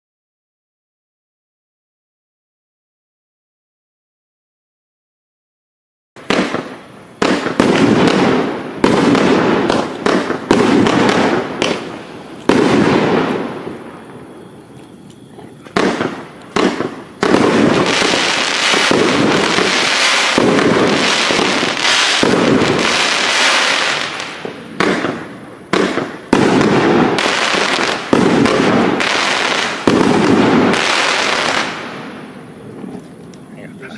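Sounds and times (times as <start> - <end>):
fireworks shots launching: 6.2 - 14.3, 15.7 - 33.0
glittering fireworks crackle: 6.2 - 33.9.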